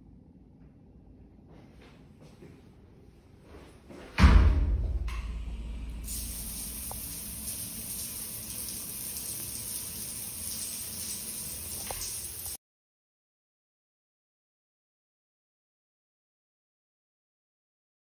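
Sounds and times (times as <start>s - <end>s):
shower water spraying: 5.4s - 12.6s.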